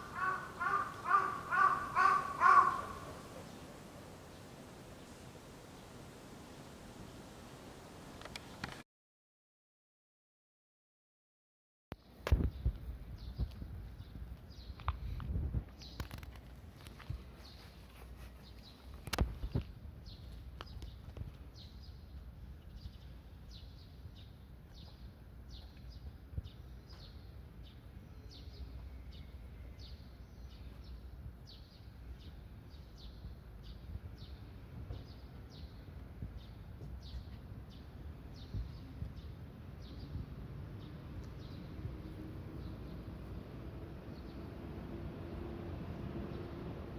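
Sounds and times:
bird chirping: 0.0 - 3.7.

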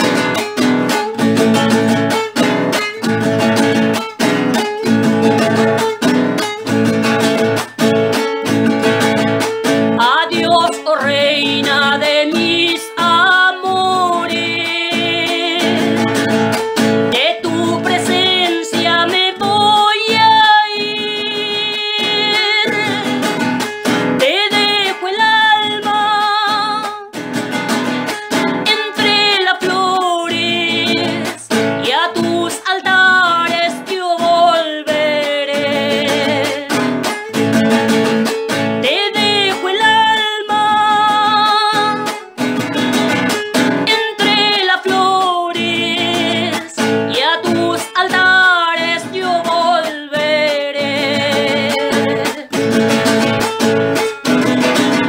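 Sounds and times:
strummed acoustic guitar: 0.0 - 55.0
woman singing with vibrato: 9.6 - 27.3, 28.3 - 55.0.

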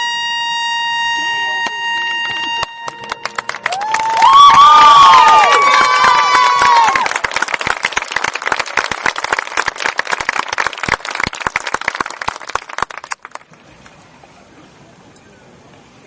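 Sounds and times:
audience applauding: 2.6 - 13.6.

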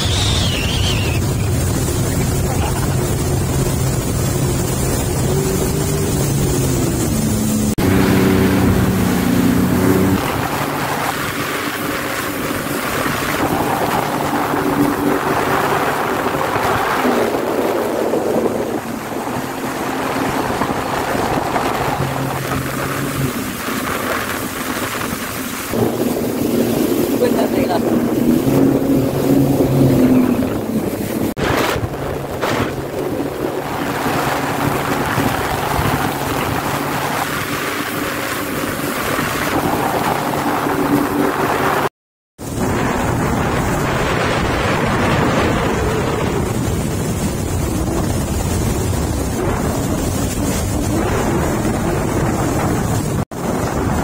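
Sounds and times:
jet ski engine running: 0.0 - 54.0
rushing water: 0.0 - 54.0
wind on microphone: 0.0 - 54.0.

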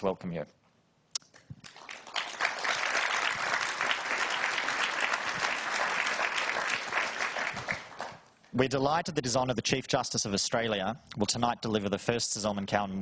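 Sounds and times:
audience applauding: 1.6 - 8.3.

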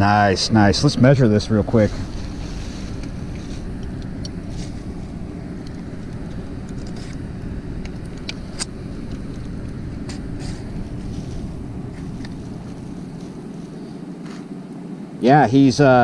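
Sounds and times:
wind buffeting microphone: 0.0 - 15.2.

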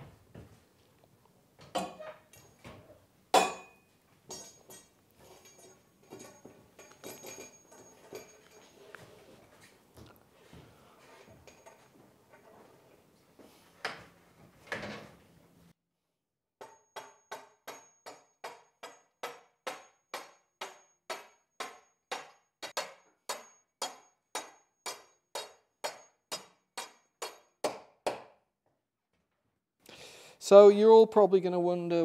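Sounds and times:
hammer striking metal bar: 3.3 - 4.9, 16.6 - 28.4.

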